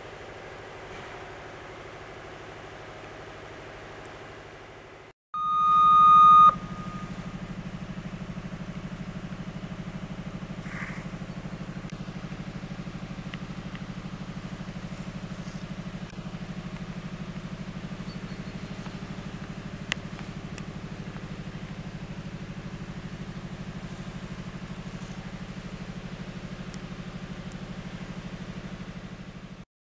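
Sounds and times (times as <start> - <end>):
warning signal beep: 5.4 - 7.4.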